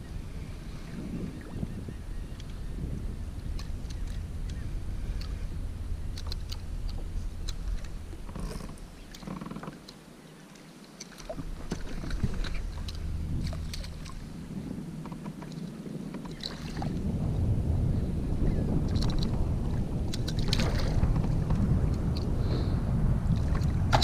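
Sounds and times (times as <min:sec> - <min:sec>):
wind rumbling on microphone: 0:00.0 - 0:09.9, 0:11.1 - 0:24.0
water lapping against kayak: 0:00.0 - 0:24.0
light clicks and ticks: 0:06.1 - 0:11.8.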